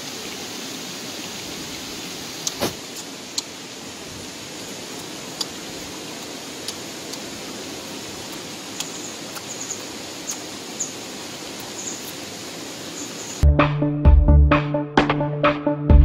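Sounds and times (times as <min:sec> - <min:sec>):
outdoor background hiss: 0:00.0 - 0:13.4
small high chirps: 0:08.3 - 0:11.0.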